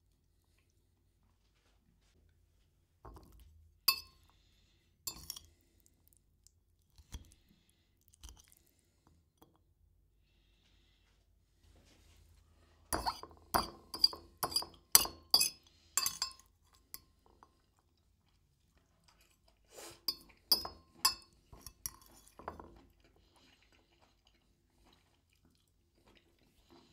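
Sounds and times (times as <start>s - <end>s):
cutlery clinking on a plate: 3.9s - 4.1s, 13.0s - 17.1s, 20.1s - 22.8s.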